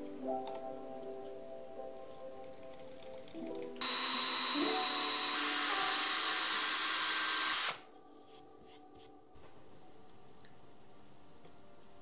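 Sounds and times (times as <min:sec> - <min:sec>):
power drill boring into wood: 0:03.8 - 0:07.8.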